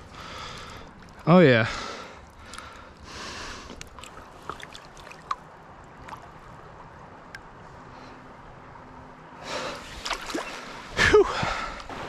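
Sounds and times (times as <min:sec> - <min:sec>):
creek water lapping and trickling: 0:00.0 - 0:08.3, 0:09.4 - 0:12.0
small water drips: 0:02.2 - 0:07.5.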